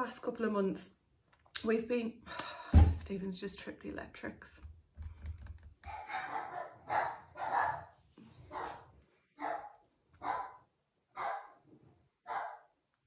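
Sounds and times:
dog barking: 5.9 - 11.6, 12.2 - 12.8.

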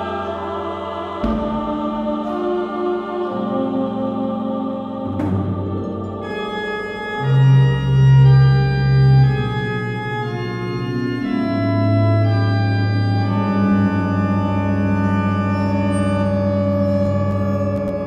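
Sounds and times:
organ chords: 0.0 - 18.0.

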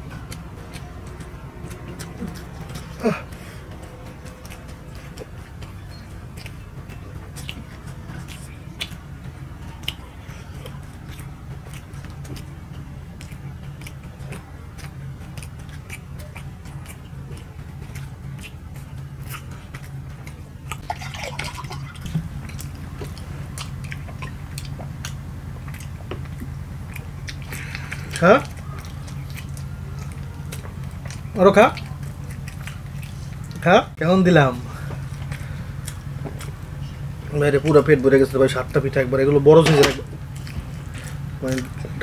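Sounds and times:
people chewing: 0.0 - 42.0
steady low hum: 0.0 - 42.0
mouth clicks and smacks: 0.2 - 20.9, 21.5 - 33.7, 39.8 - 42.0.

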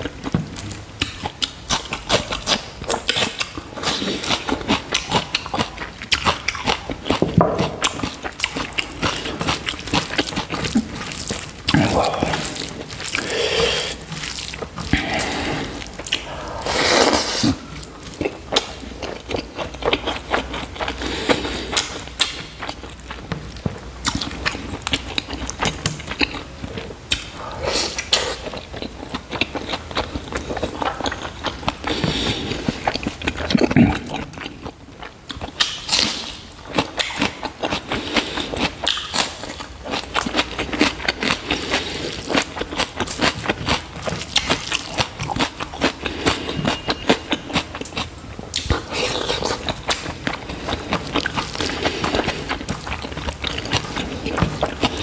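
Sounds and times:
person chewing with wet smacks: 0.0 - 55.0
rice squishing in gravy: 7.8 - 22.0.

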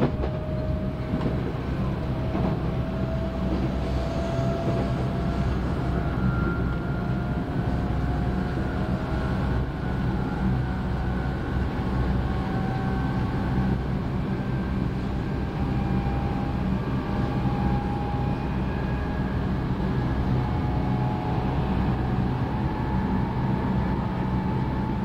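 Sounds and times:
train wheels rumbling on rail: 0.0 - 25.0.

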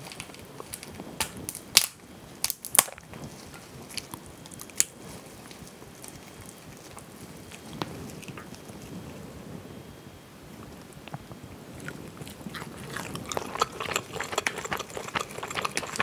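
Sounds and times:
crayfish shells cracking: 0.0 - 3.2, 12.3 - 16.0.

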